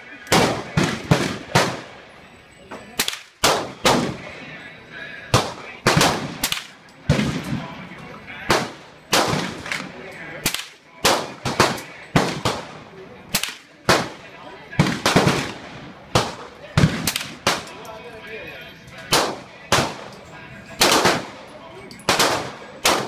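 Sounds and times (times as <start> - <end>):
rifle shots echoing: 0.3 - 1.9, 3.0 - 4.4, 5.3 - 7.7, 8.4 - 17.8, 19.1 - 20.2, 20.8 - 21.5, 22.1 - 23.0.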